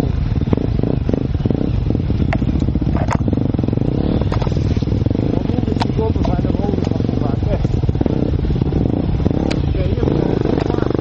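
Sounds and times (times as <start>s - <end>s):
dirt bike engine running: 0.0s - 11.0s
sharp knocks and clatter: 2.2s - 3.4s.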